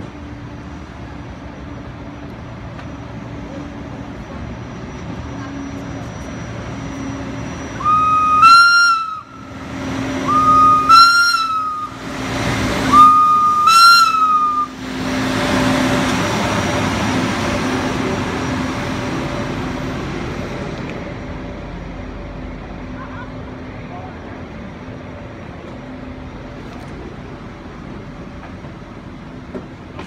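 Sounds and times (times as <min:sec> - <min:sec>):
railcar diesel engine passing: 0:00.0 - 0:30.0
railcar horn blasts: 0:07.8 - 0:09.6, 0:10.2 - 0:12.1, 0:12.8 - 0:14.8.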